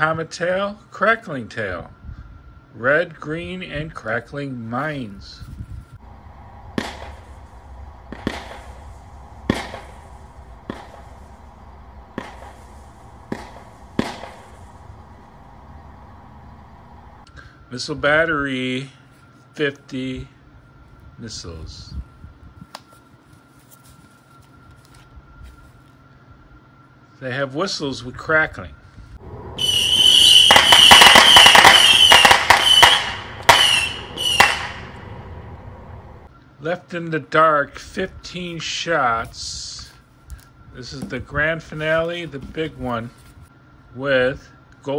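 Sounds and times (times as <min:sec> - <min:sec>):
firework shots firing: 0:06.6 - 0:15.3, 0:29.6 - 0:35.2.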